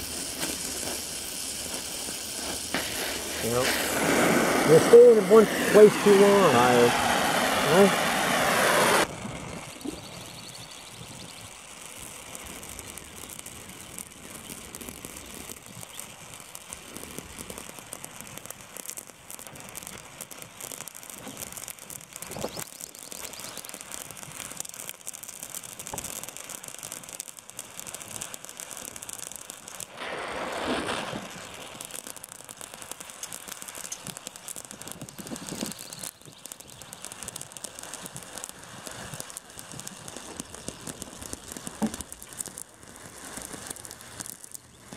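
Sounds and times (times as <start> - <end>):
loud gas rush: 0.0 - 9.1, 29.9 - 31.4
sparks crackling: 0.0 - 44.9
welding torch flame hissing: 0.0 - 44.9.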